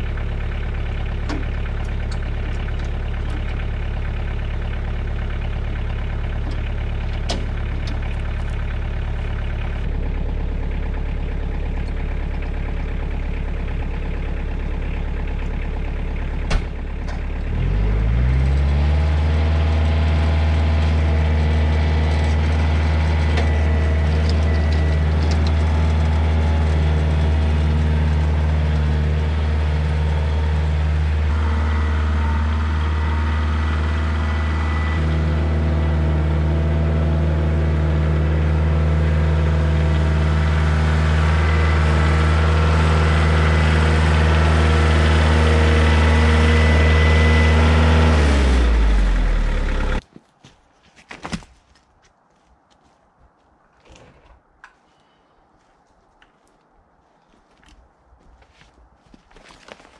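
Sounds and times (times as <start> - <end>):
tractor diesel engine running: 0.0 - 50.1.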